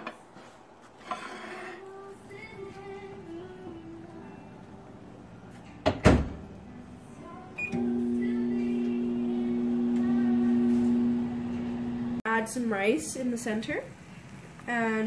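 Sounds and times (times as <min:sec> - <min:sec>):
microwave humming: 0:07.5 - 0:12.2.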